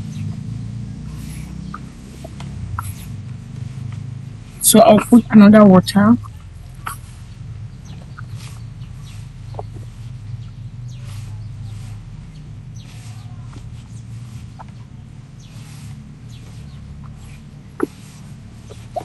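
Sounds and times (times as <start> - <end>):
steady low hum: 0.0 - 19.0
hand squelching dough in bowl: 6.4 - 19.0.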